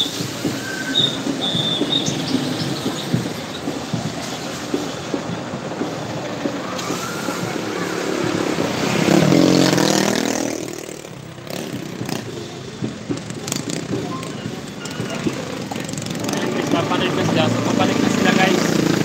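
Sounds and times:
car engine and tyre noise: 0.0 - 19.0
diesel engine passing: 0.0 - 19.0.

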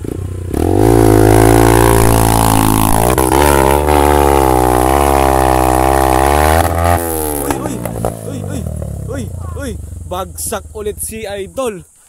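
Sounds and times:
dirt bike engine revving: 0.0 - 11.8.

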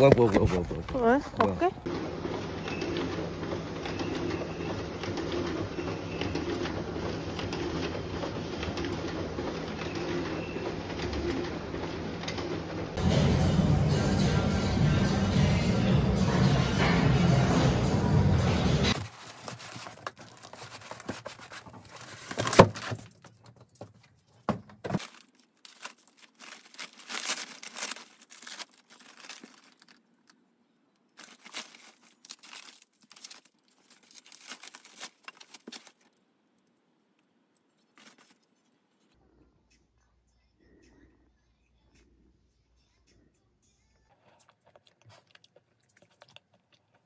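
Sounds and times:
background music: 13.0 - 19.0
plastic bags crinkling: 18.9 - 36.9, 37.5 - 39.1.

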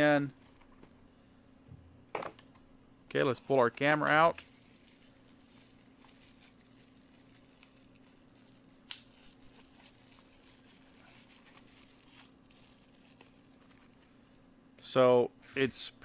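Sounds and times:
bubble wrap crinkling: 3.2 - 14.2.

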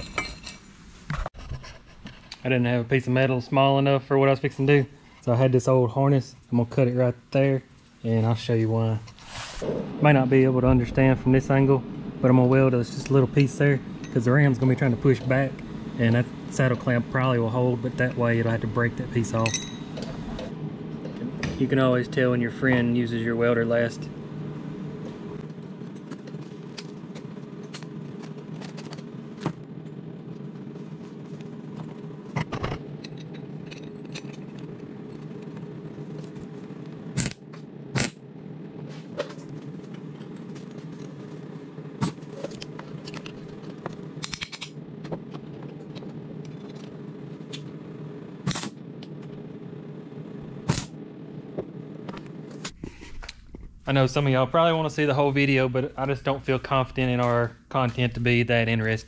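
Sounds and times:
welding arc buzzing: 9.2 - 54.3
sharp welding pops: 37.2 - 38.2.

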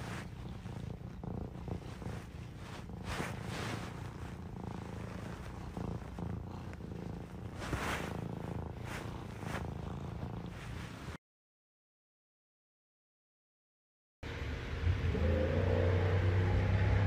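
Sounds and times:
cat purring: 0.0 - 11.2.

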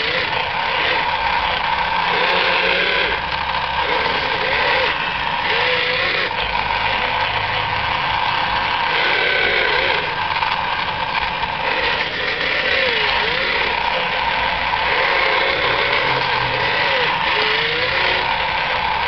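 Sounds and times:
steady engine-like drone: 0.0 - 19.0
wavering motor whines: 0.0 - 19.0.

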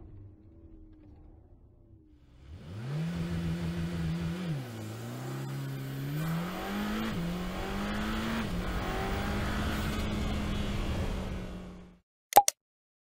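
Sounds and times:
sports car engine accelerating: 2.3 - 12.0.

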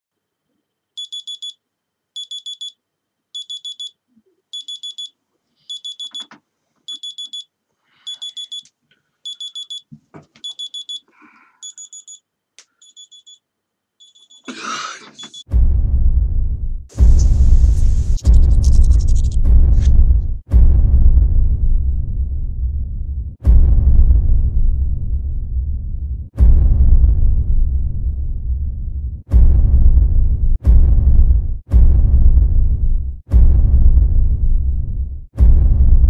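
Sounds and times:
smartphone alarm beeping: 1.0 - 1.6, 2.2 - 2.8, 3.4 - 6.3, 6.9 - 12.2, 12.8 - 13.4, 14.0 - 14.5, 15.2 - 15.5
very loud deep rumble: 15.5 - 36.0
loud noisy burst: 16.9 - 21.2.

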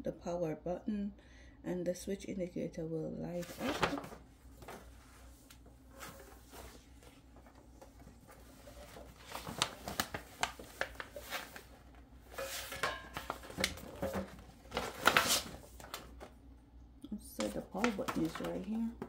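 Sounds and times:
paper rustling: 3.4 - 16.3, 17.4 - 19.0.

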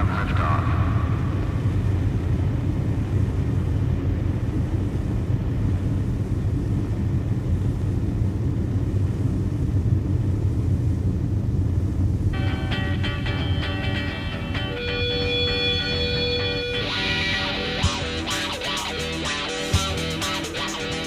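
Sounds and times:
rocket launch rumble: 0.0 - 12.4.

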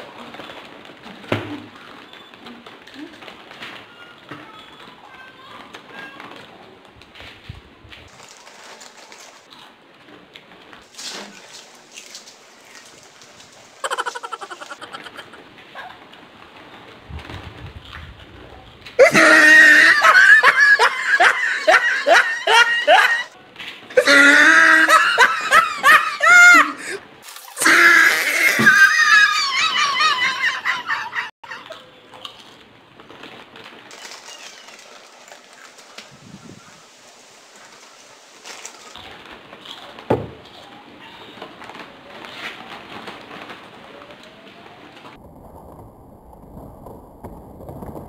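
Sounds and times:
girl laughing loudly: 13.8 - 15.4, 19.0 - 23.3, 24.0 - 27.0, 27.6 - 31.6.

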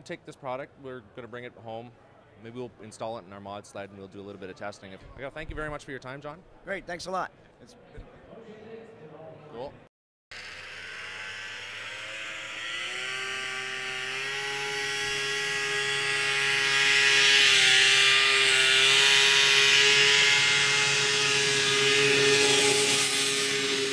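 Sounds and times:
small engine revving high: 10.3 - 23.9.

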